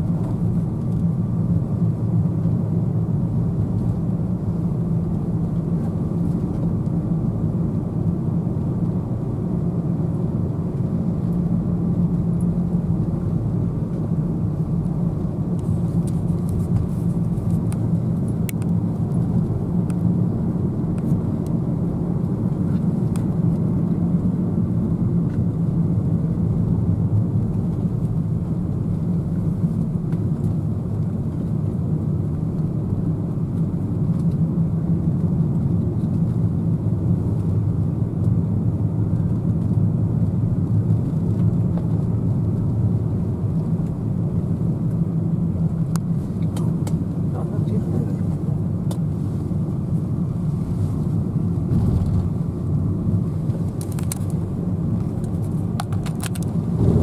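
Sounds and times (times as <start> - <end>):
car engine and tyre drone: 50.5 - 57.0.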